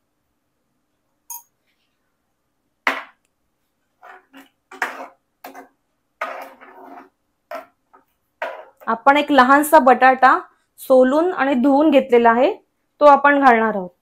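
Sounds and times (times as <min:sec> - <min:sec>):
ringing clink: 0:01.3 - 0:01.5
steel ladle scraping a pot: 0:04.0 - 0:07.8.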